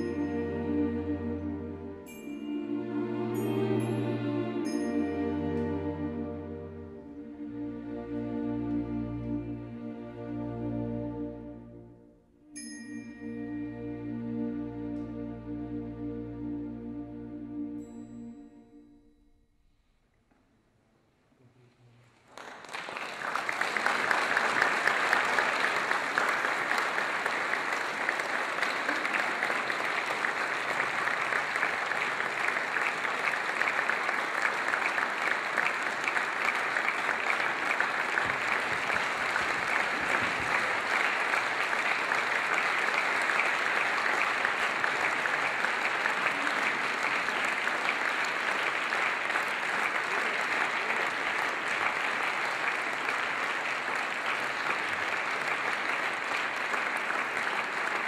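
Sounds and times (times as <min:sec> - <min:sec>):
audience applause: 0:22.2 - 0:58.0.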